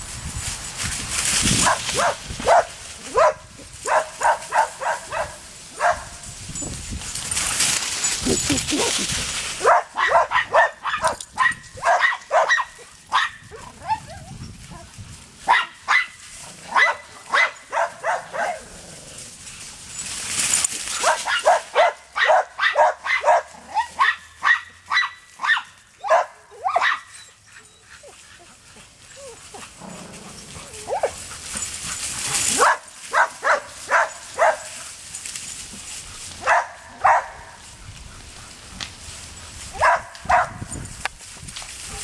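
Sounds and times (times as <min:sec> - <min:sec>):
dogs barking: 0:01.6 - 0:06.2, 0:09.6 - 0:14.1, 0:15.4 - 0:18.7, 0:21.0 - 0:27.1, 0:30.6 - 0:31.2, 0:32.3 - 0:34.8, 0:36.4 - 0:37.6, 0:39.7 - 0:40.7.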